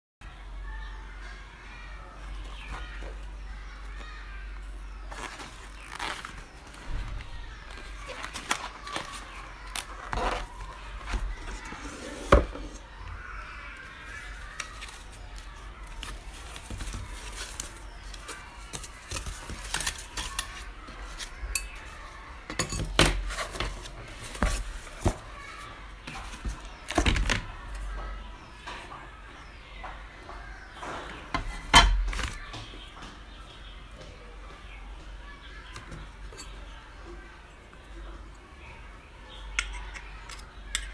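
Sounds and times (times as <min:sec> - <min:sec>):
packing foam rustling: 0:05.0 - 0:11.9, 0:14.1 - 0:21.4.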